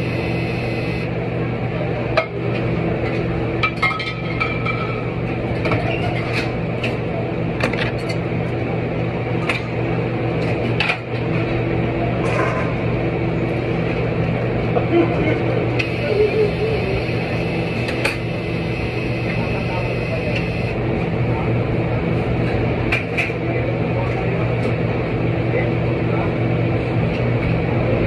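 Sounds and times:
machine hum: 0:00.0 - 0:01.6, 0:15.4 - 0:22.0.

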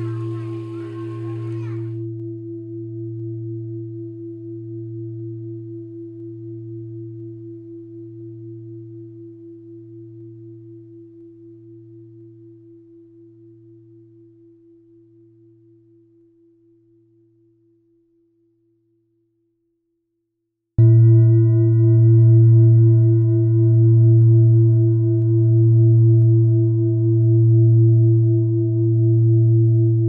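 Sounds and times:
temple bell ringing: 0:00.0 - 0:02.0.

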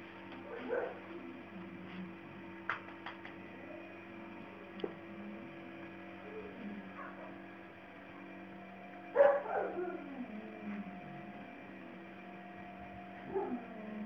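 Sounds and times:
puppy barking into a whine: 0:00.5 - 0:01.0, 0:09.2 - 0:10.0, 0:13.2 - 0:13.7.

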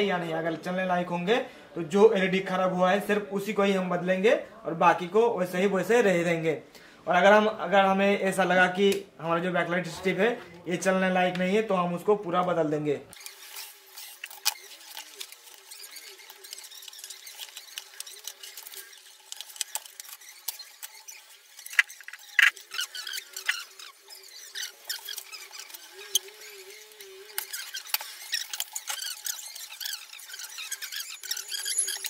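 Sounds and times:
plastic and metal parts clattering: 0:13.2 - 0:32.0
wavering squeak: 0:13.2 - 0:32.0.

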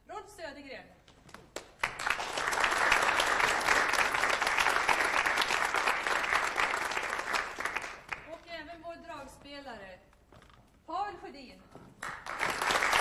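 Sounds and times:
crowd applauding: 0:01.6 - 0:08.4, 0:12.0 - 0:13.0.

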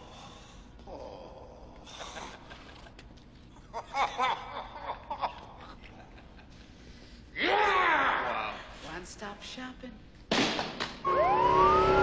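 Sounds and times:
person chuckling softly: 0:01.8 - 0:07.0.

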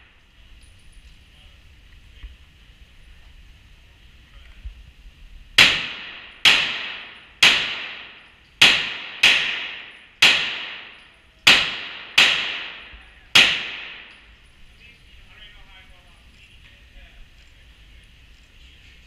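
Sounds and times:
pistol shots echoing: 0:05.6 - 0:14.2.

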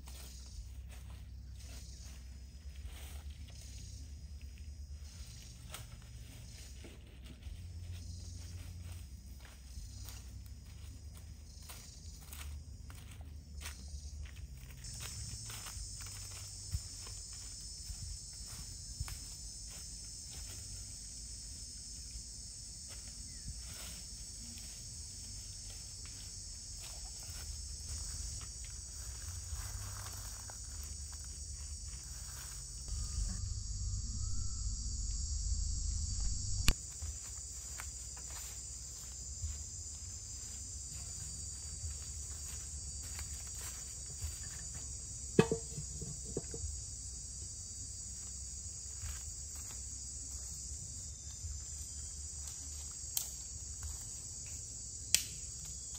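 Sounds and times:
high-pitched insect chorus: 0:00.0 - 0:55.9
footsteps crunching through dry leaves: 0:05.3 - 0:21.4, 0:22.9 - 0:45.1
sharp knock: 0:45.4 - 0:46.6
stones set down on ground: 0:45.4 - 0:46.6.

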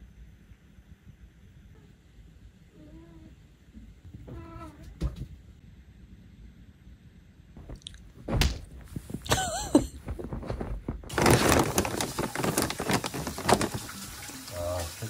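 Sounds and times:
knocks and thunks: 0:07.6 - 0:11.6
rattling clatter of hard objects: 0:09.0 - 0:14.1.

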